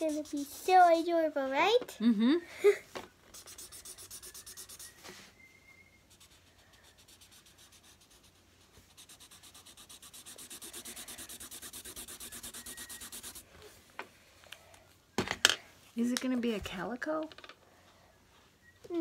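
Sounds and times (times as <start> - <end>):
marker scribbling on paper: 0.0 - 1.1, 3.3 - 4.9, 6.1 - 13.4.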